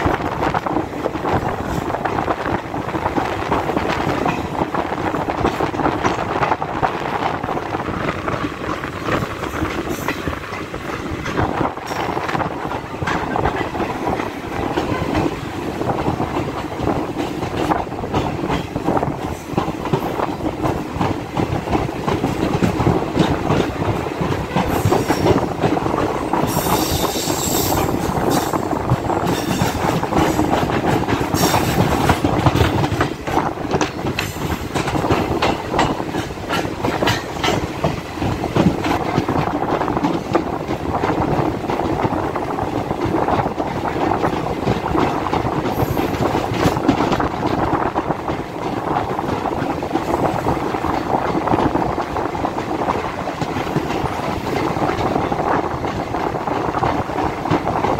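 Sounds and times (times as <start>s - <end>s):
train wheel and rail rumble: 0.0s - 57.9s
clattering over rail joints: 8.0s - 57.9s
train wheel squeals: 24.6s - 25.5s, 26.1s - 30.5s.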